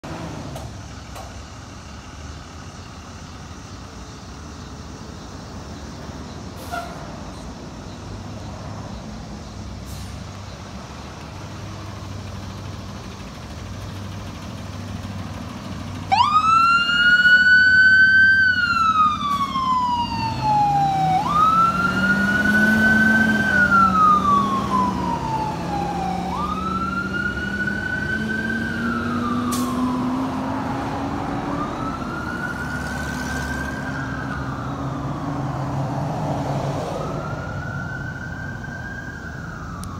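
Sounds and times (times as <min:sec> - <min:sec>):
engine rumbling low: 0:00.0 - 0:39.9
ambulance siren wailing: 0:16.0 - 0:39.9.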